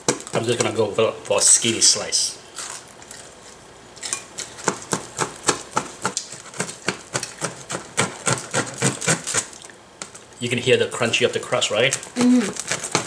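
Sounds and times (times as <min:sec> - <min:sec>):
knife sawing through crunchy crust: 0:06.3 - 0:09.5, 0:12.5 - 0:13.0.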